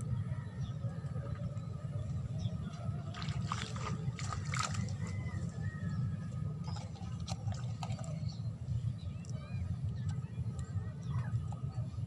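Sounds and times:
water sloshing and splashing: 2.5 - 10.2.

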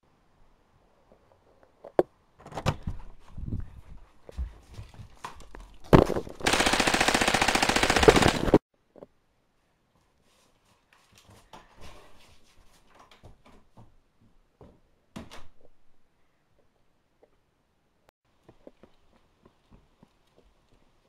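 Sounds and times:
rapid machine-gun fire: 6.4 - 8.6.

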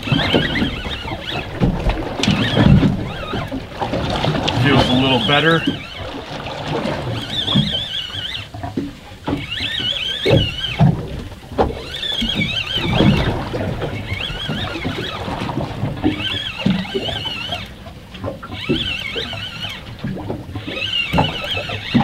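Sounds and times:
fishing reel gear whine: 0.0 - 22.0
water and wind noise: 0.0 - 22.0.

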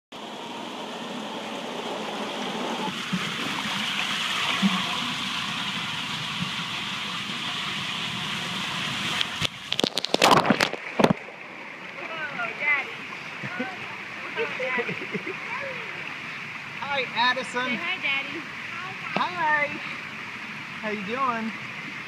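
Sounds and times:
water rushing through slide: 0.2 - 19.8
splashing into pool: 7.7 - 16.0.

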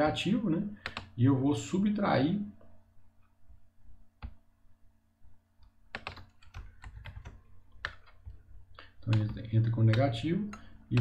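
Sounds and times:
computer keyboard typing: 0.8 - 1.1, 5.9 - 11.0.

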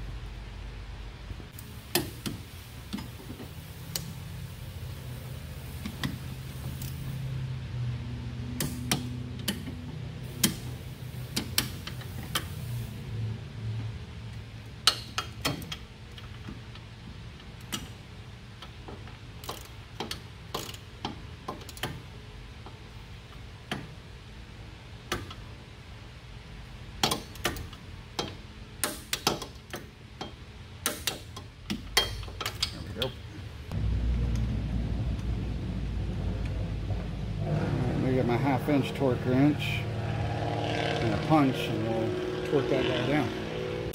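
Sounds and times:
ratcheting wrench clicking: 19.4 - 22.0.

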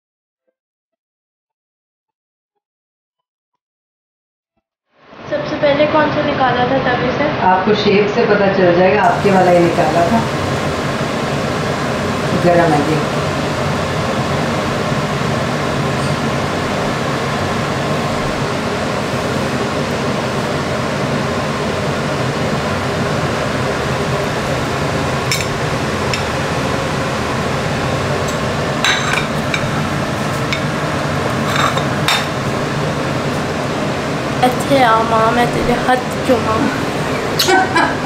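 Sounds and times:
kitchen utensils clinking: 25.3 - 26.4, 28.8 - 29.8, 30.5 - 32.4.

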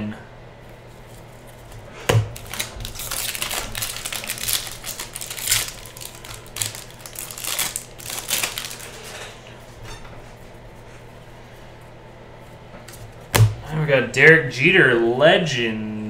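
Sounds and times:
foil pack crinkling and tearing: 0.8 - 9.3
cards shuffled by hand: 1.0 - 9.0.

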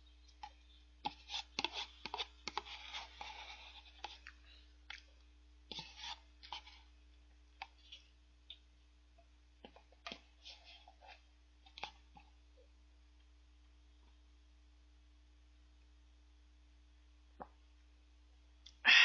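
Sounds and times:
spoon scraping paper cup: 1.0 - 4.3, 5.7 - 6.9.

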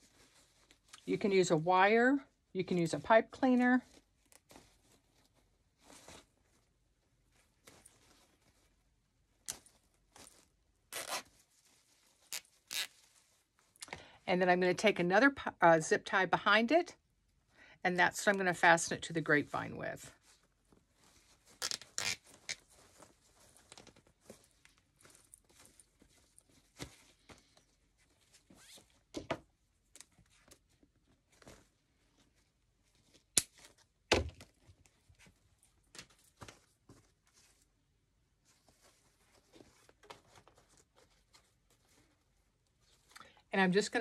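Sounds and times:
ribbon bow rustling: 2.8 - 13.8, 19.6 - 43.1.

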